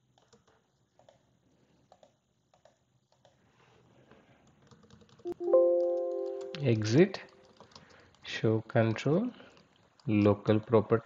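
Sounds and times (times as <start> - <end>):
computer keys clicking: 0.0 - 1.3, 1.9 - 3.4, 4.4 - 8.3.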